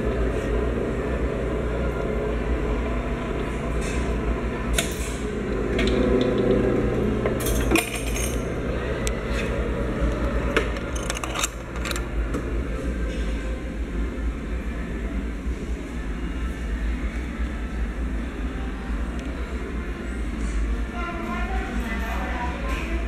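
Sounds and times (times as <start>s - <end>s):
steady low hum: 0.0s - 23.0s
coin press gears grinding: 7.4s - 8.5s, 10.8s - 12.1s.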